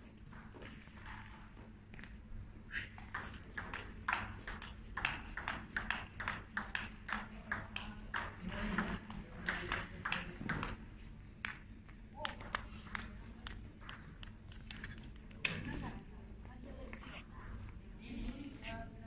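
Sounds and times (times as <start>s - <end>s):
ball bouncing on table: 3.0s - 10.8s
ping pong ball clicking off rackets: 3.0s - 10.8s, 11.4s - 15.7s.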